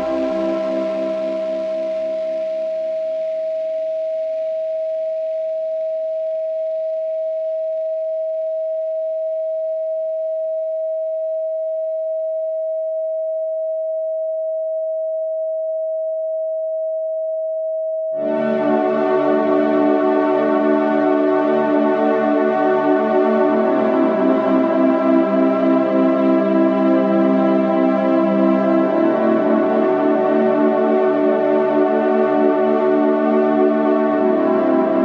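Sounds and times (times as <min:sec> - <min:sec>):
ambient synth music: 0:00.0 - 0:03.1, 0:18.2 - 0:35.0
faint ambient music: 0:00.0 - 0:04.1, 0:18.2 - 0:35.0
steady sine tone: 0:00.0 - 0:35.0.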